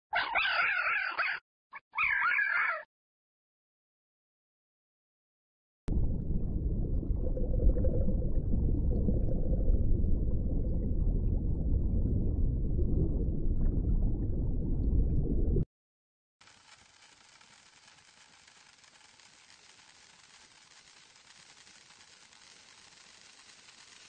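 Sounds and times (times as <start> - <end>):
underwater rumble and gurgle: 5.9 - 15.7.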